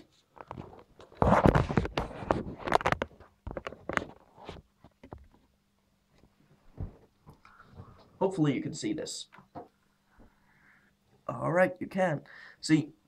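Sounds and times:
handling rustling and scraping: 0.0s - 5.6s.

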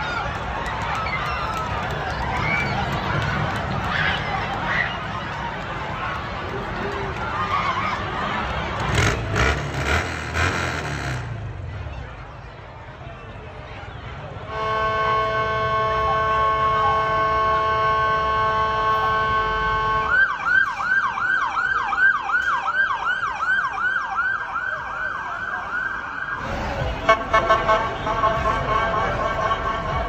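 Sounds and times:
police car siren: 19.6s - 26.9s.

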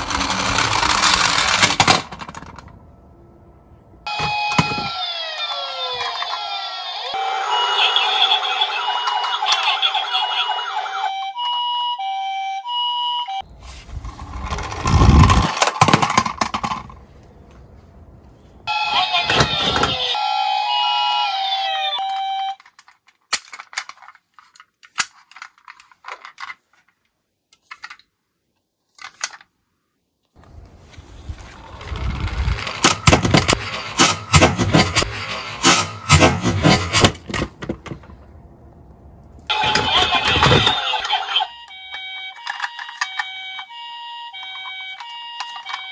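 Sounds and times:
toy car rattling down wooden slope: 0.0s - 2.7s, 13.9s - 17.0s, 31.3s - 38.1s, 44.4s - 45.9s
two-tone ambulance siren: 4.0s - 13.5s, 18.6s - 22.6s, 39.5s - 45.9s
electronic siren with sliding tones: 4.1s - 15.5s, 18.7s - 22.6s, 39.5s - 45.9s.

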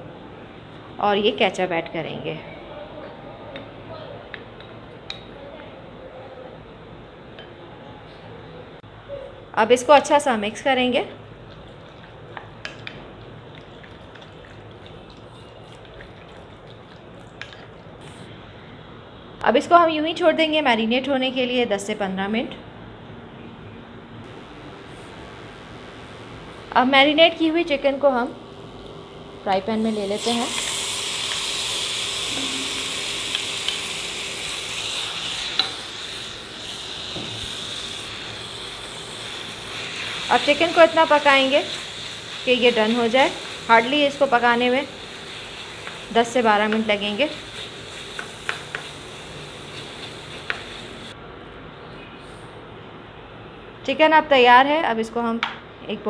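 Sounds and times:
chicken sizzling in frying pan: 29.8s - 51.1s
spatula scraping and tapping: 48.1s - 48.9s.

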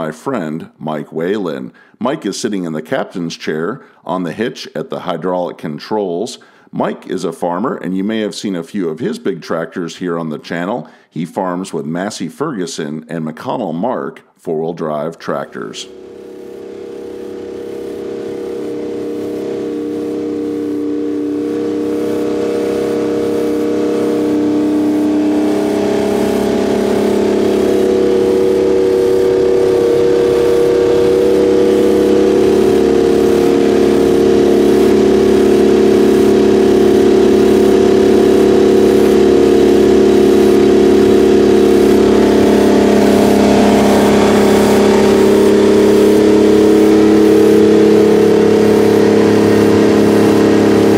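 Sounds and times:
diesel engine running loud: 15.8s - 50.9s.

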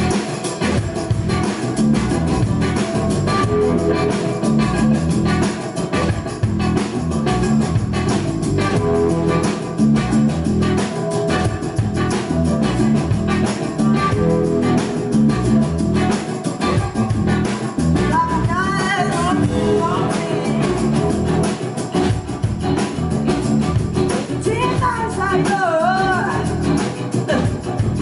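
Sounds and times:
rock band playing: 0.0s - 28.0s
woman singing lead vocal: 18.1s - 21.3s, 24.4s - 27.6s.

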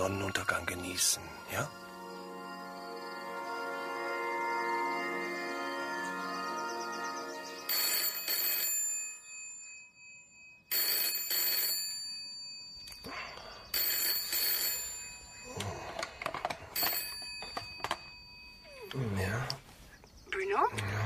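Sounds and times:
telephone ringing: 7.2s - 12.9s, 13.6s - 18.7s.

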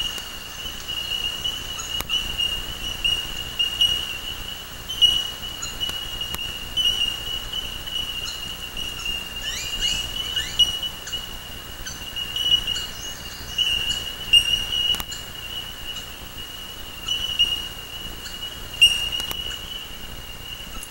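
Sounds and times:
birds chirping: 0.0s - 20.9s
steady high-pitched whine: 0.0s - 20.9s.

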